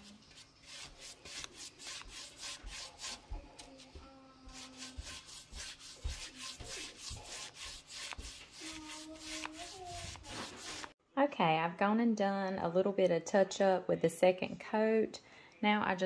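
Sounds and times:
paintbrush scrubbing strokes: 0.0 - 3.6, 4.4 - 11.0.

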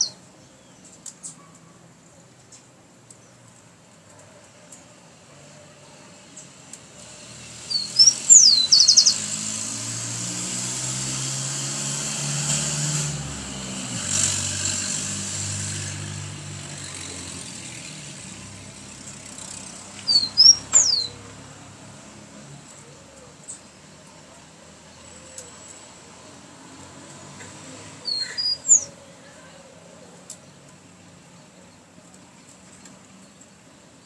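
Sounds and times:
sparrow singing: 0.0 - 1.4, 7.5 - 9.6, 18.1 - 21.4, 27.8 - 34.0
passing vehicle hum: 6.1 - 32.0.

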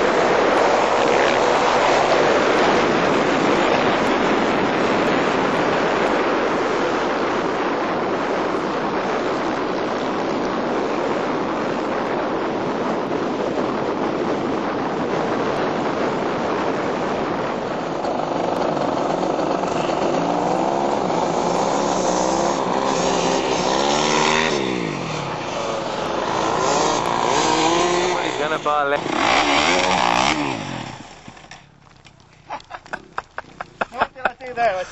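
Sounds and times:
motorcycle passing by: 0.0 - 5.8, 17.6 - 31.3
motorcycle engines revving: 0.0 - 34.9
steady rushing noise: 0.0 - 34.9.

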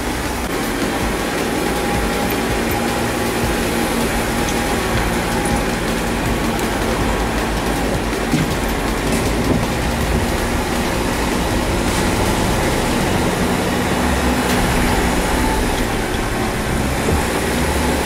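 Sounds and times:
constant rushing noise: 0.0 - 18.0
vehicle engine running: 0.0 - 18.0.

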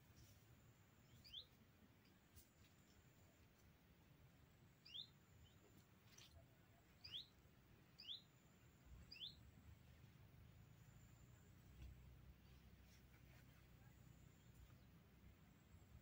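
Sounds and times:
faint bird calls: 9.0 - 9.5.

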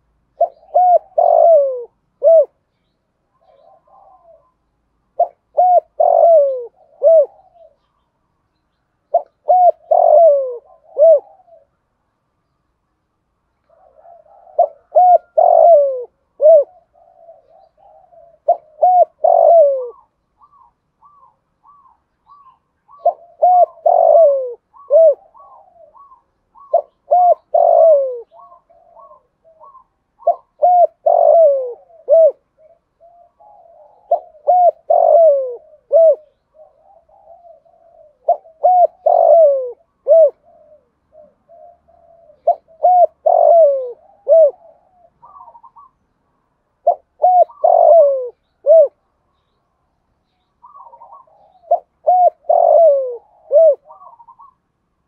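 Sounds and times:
dove cooing: 0.0 - 2.7, 3.3 - 8.1, 9.1 - 12.0, 13.7 - 46.0, 46.7 - 49.0, 50.6 - 54.7.

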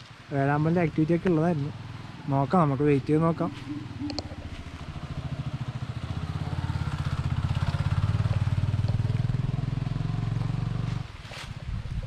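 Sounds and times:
small motorcycle engine running: 3.3 - 11.0.

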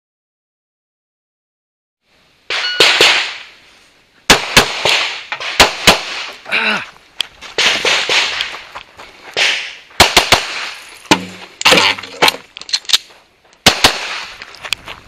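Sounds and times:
pistol shots: 2.5 - 3.5, 4.3 - 6.4, 9.4 - 11.4, 13.6 - 14.3.

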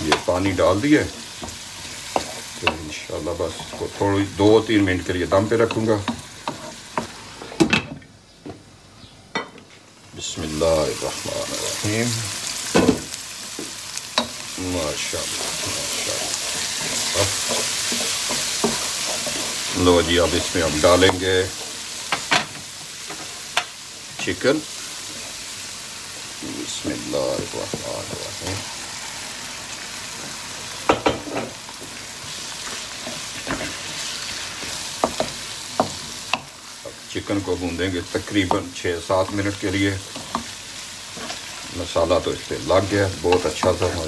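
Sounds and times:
wooden spoon scraping a wok: 0.0 - 7.6, 13.3 - 23.6, 26.2 - 37.0, 37.6 - 44.0
masala sizzling in a wok: 0.0 - 44.0.

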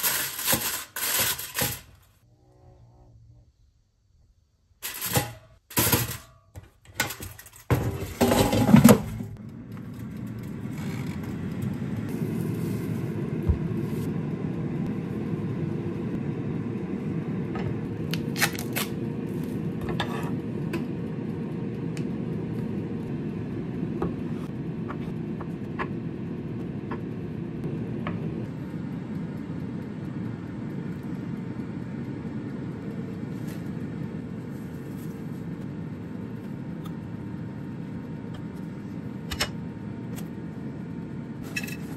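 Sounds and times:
air fryer fan humming: 4.9 - 41.9.

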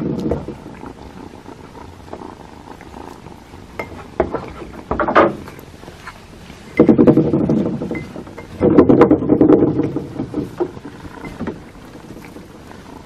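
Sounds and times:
cat purring: 0.0 - 13.0.

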